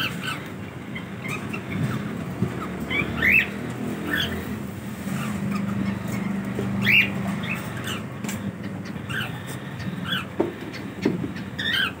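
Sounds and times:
cockatiels chirping: 0.0 - 4.6, 5.2 - 12.0.

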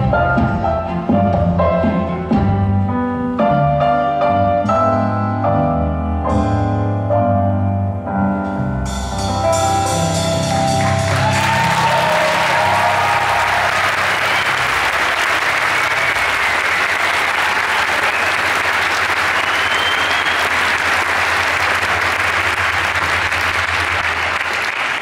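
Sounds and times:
audience applauding: 10.8 - 25.0.

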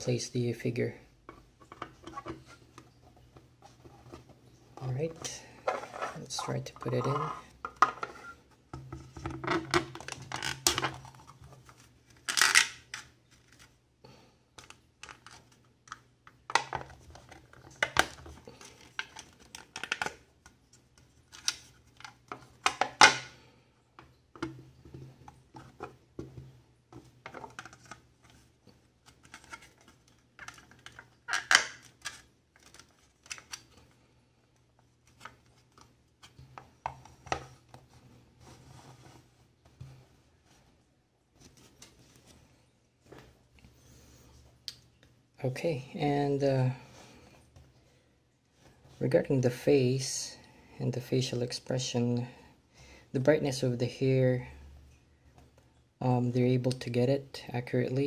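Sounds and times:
plastic parts clicking and tapping: 14.6 - 23.3, 29.0 - 33.8.

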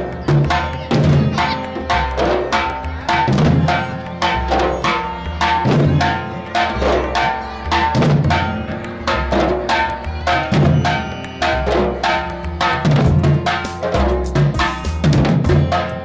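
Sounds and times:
barrel drums beaten with sticks: 0.0 - 16.0.

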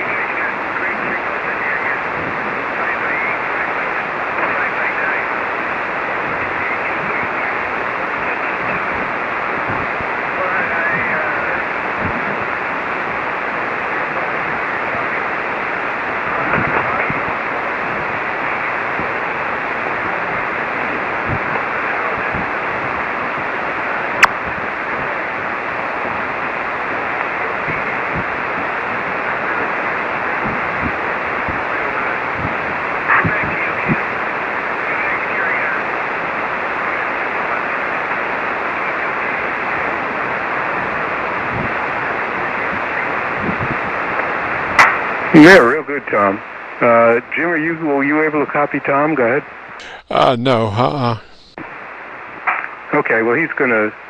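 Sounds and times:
faint voice on radio: 0.0 - 5.5, 6.2 - 9.1, 10.4 - 11.7, 21.7 - 22.5, 33.1 - 34.1, 34.8 - 35.9, 45.4 - 47.4, 49.8 - 51.6.

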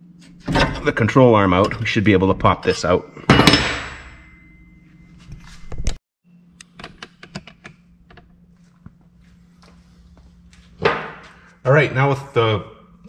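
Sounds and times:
steady low hum: 0.0 - 13.0
loud metallic clank: 3.3 - 4.6.

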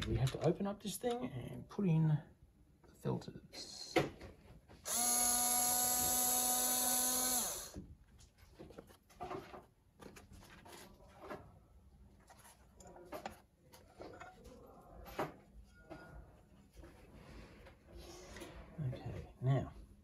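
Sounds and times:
electric screwdriver running: 4.9 - 7.8.

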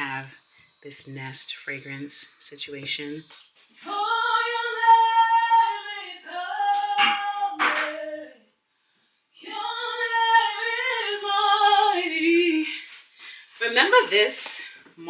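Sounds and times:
woman singing unaccompanied: 3.8 - 8.5, 9.4 - 13.0.

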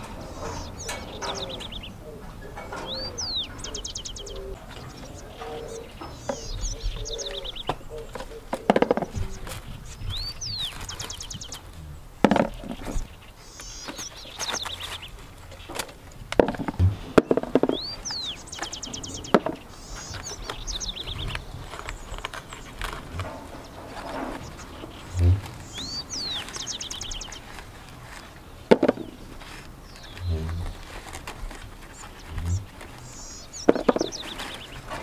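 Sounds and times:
songbird trilling: 0.0 - 16.0, 16.6 - 35.0
plant vines snapping and rustling: 0.0 - 35.0.

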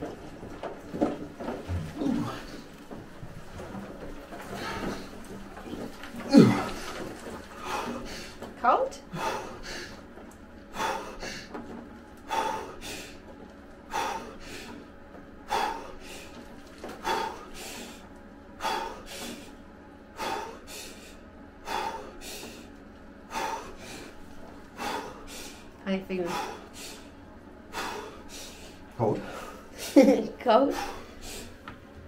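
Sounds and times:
man gasping breaths: 9.1 - 10.0, 10.7 - 11.6, 12.3 - 13.3, 13.9 - 14.8, 15.4 - 16.4, 17.0 - 19.6, 20.2 - 22.7, 23.3 - 29.7.

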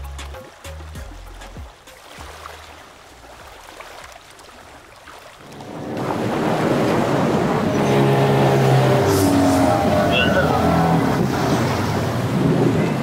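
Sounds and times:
water rushing past hull: 0.0 - 13.0
outboard motor running: 5.4 - 13.0
wind on microphone: 5.4 - 13.0.

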